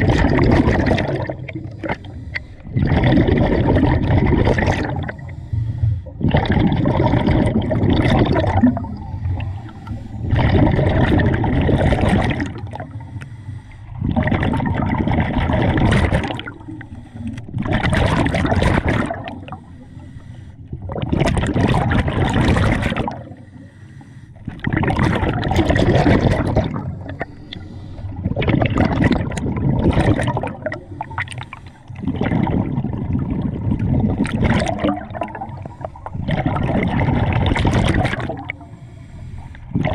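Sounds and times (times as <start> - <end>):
diver exhaling bubbles underwater: 0.0 - 13.2, 13.9 - 19.8, 20.7 - 23.7, 24.4 - 38.8, 39.6 - 39.9.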